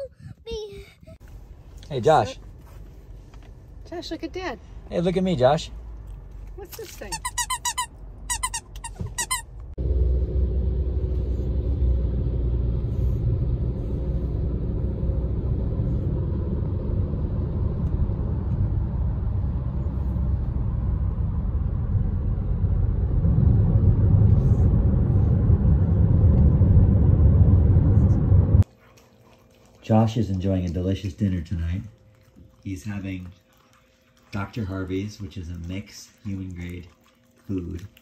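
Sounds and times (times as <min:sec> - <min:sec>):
road and engine rumble in car: 0:00.0 - 0:07.1, 0:08.0 - 0:28.7.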